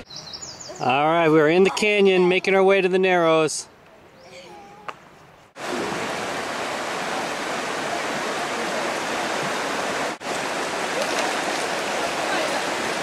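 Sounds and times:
river rushing over rocks: 5.6 - 13.0.

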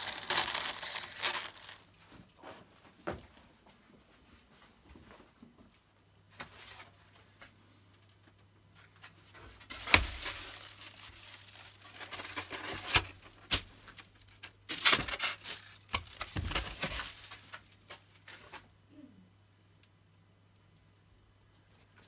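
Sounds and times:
aluminium foil crinkling: 0.0 - 2.0, 9.4 - 18.7.

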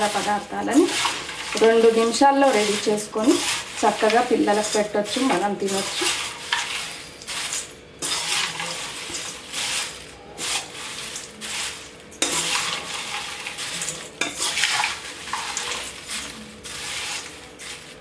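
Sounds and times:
crisp flakes rustling and crackling: 0.0 - 18.0
metal spoon scraping steel bowl: 0.0 - 18.0.

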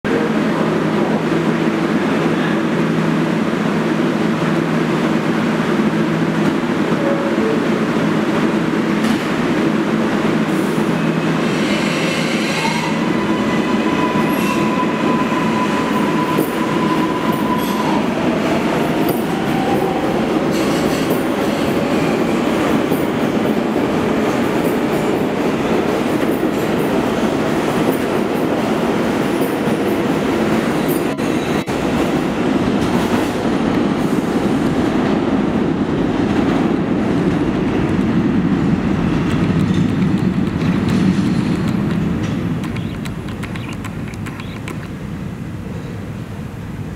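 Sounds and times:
subway train rumbling: 0.0 - 46.9
wheels clicking over rail joints: 39.2 - 45.0.

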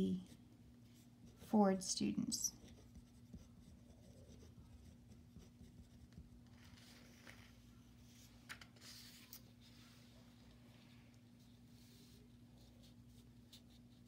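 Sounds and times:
faint low hum: 0.0 - 14.0
paper rustling: 6.5 - 10.0.

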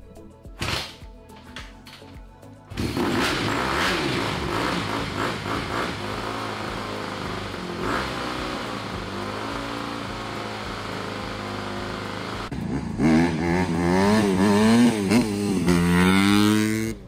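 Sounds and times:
motorcycle engine idling: 2.7 - 13.1
motorcycle engine revving: 2.7 - 17.0.

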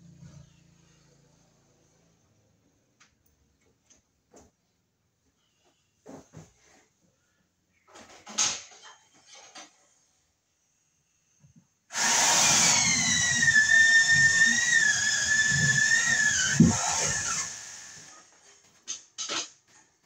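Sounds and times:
electric drill whining: 11.9 - 18.2.

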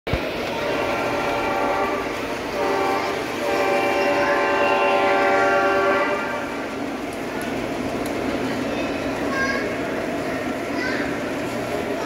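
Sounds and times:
model locomotive horn blasts: 0.5 - 6.7.

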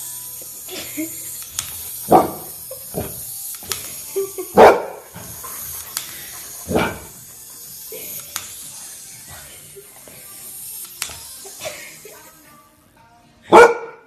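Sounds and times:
dog barking: 13.5 - 14.0.

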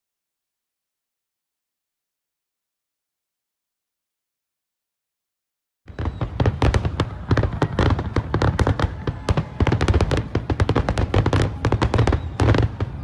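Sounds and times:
fireworks crackling bangs: 5.9 - 13.0
fireworks deep booms: 5.9 - 13.0.

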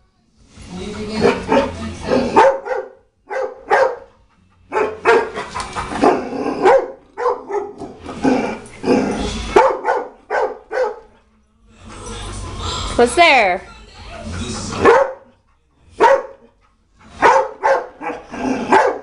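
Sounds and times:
dog barking loudly: 1.2 - 4.1, 4.7 - 5.4, 6.0 - 8.0, 9.6 - 11.1, 14.8 - 15.3, 16.0 - 16.5, 17.2 - 19.0.

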